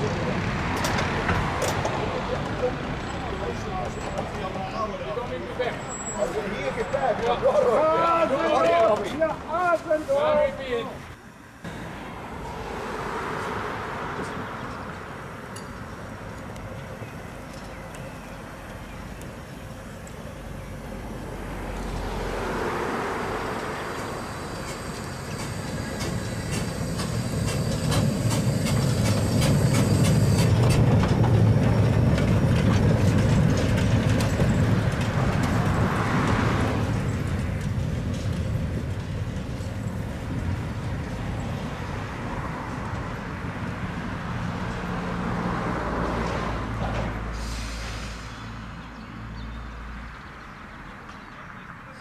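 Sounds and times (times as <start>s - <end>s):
steam hissing from locomotive: 18.3s - 31.6s, 47.3s - 48.6s
running gear rumbling on rails: 23.3s - 41.5s.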